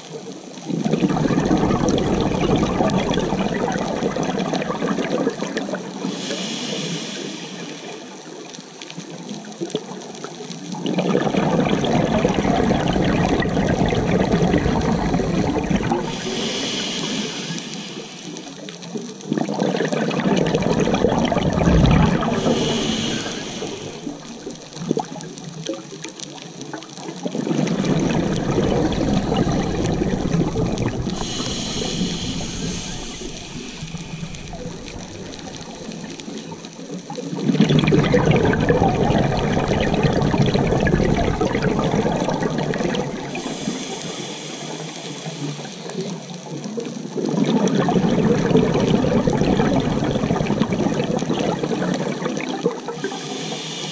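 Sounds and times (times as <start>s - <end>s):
exhaled air bubbling: 0.0s - 53.9s
regulator inhale hiss: 6.0s - 8.3s, 15.9s - 18.8s, 22.1s - 24.6s, 29.6s - 36.6s, 43.1s - 46.5s, 53.0s - 53.9s.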